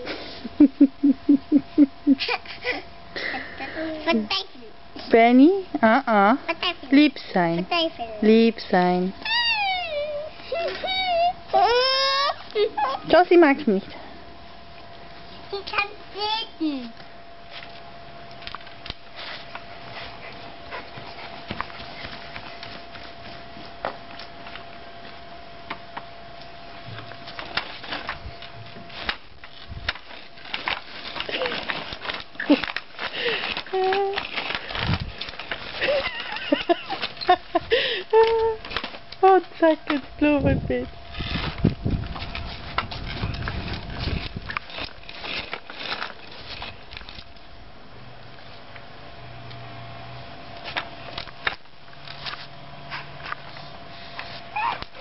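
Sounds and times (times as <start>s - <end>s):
toy wheels rattling over paving: 28.9s - 37.4s, 41.1s - 47.4s.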